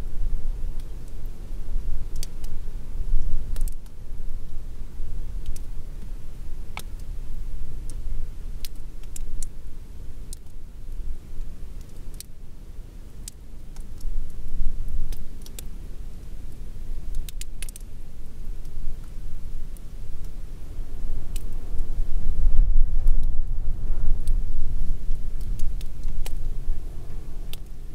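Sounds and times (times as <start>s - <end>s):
wind blowing in gusts: 0.0s - 9.6s, 18.6s - 27.9s
light raindrops ticking: 0.0s - 27.9s.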